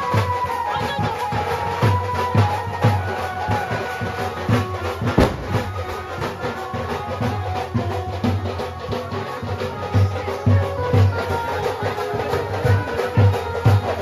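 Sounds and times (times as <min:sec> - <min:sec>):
music with drum beat: 0:00.0 - 0:14.0.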